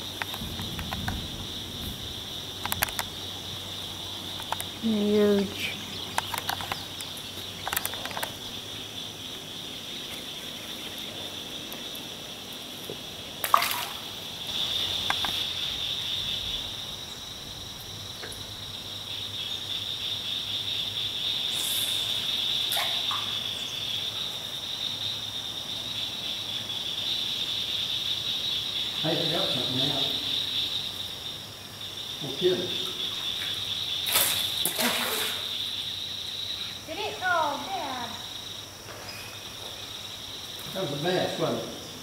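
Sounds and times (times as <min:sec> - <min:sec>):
high-pitched insect chorus buzz: 0:00.0 - 0:42.0
small clicks: 0:02.6 - 0:03.1.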